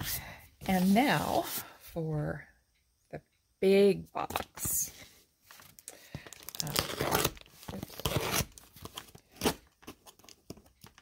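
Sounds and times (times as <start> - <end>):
packaging tearing and crinkling: 6.3 - 11.0.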